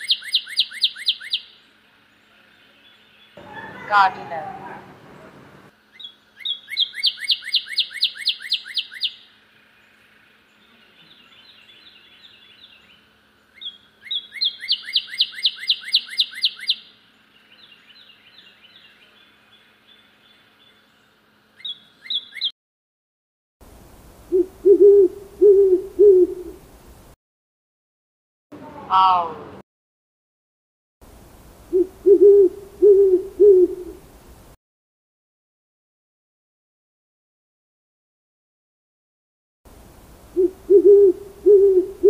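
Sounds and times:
owl hooting: 0.0 - 1.6, 5.9 - 9.3, 13.6 - 16.9, 24.3 - 26.6, 28.7 - 29.5, 31.7 - 34.0, 40.3 - 42.0.

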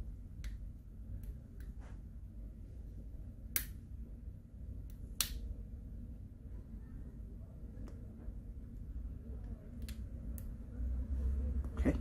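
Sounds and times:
tweezers clicking on plastic: 9.8 - 10.6.

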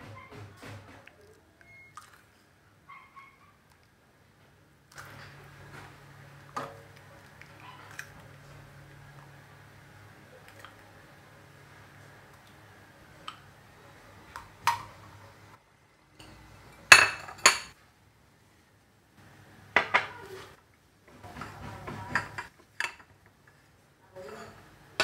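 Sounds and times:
dishes clinking: 16.2 - 17.8, 21.2 - 23.2, 24.2 - 25.0.

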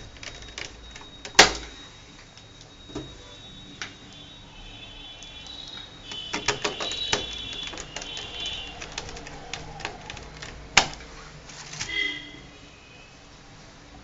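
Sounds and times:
high chirping: 4.0 - 10.7.

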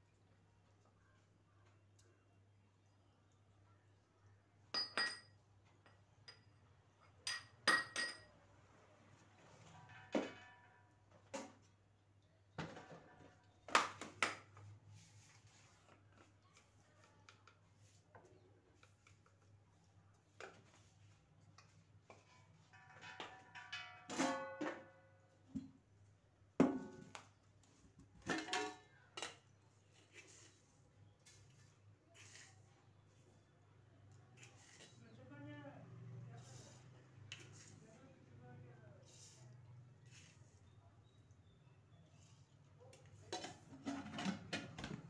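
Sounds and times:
metal tins and utensils clinking: 9.8 - 11.7, 20.4 - 25.8, 28.0 - 33.3, 42.9 - 45.0.

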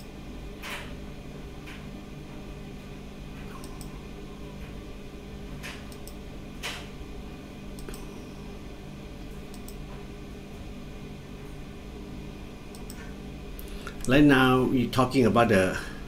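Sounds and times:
steady low hum: 0.0 - 16.0
computer mouse clicking: 3.5 - 3.9, 5.6 - 6.8, 7.8 - 8.1, 9.5 - 9.8, 12.7 - 13.1.

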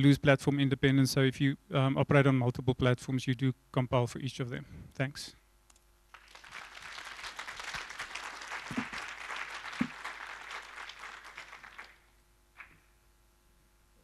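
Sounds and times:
audience applauding: 6.1 - 12.7.

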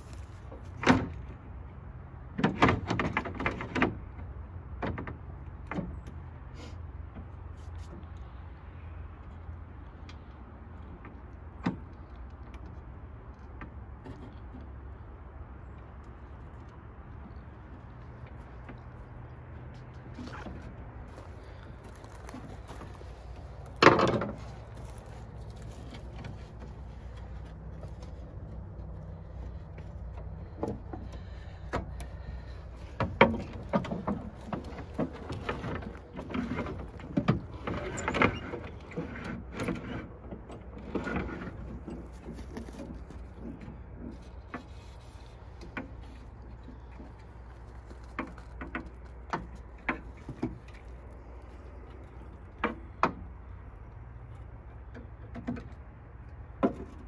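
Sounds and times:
clicks and clunks: 21.5 - 28.8, 29.5 - 44.9, 45.5 - 57.0.

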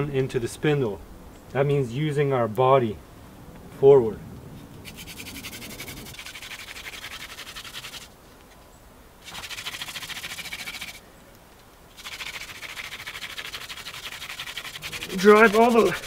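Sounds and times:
wooden spindle scratching on board: 4.8 - 8.1, 9.2 - 11.0, 12.0 - 16.0.

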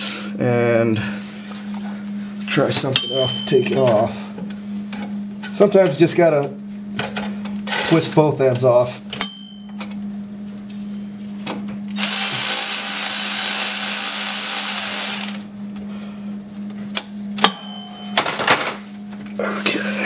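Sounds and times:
cordless ratchet motor running: 12.0 - 15.4.

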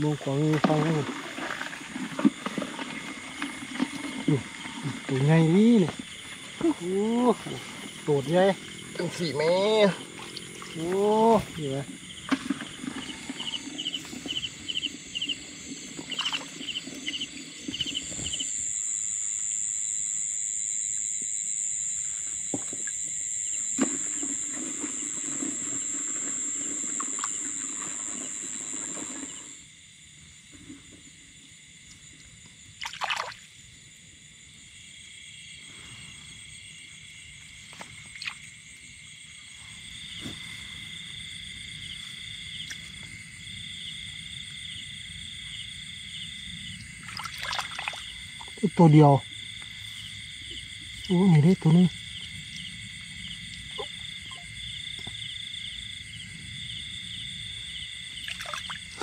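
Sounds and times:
insects and frogs chorus: 0.0 - 59.0
hands sloshing in water: 12.3 - 18.4, 32.8 - 33.4, 47.0 - 48.6, 58.2 - 59.0.

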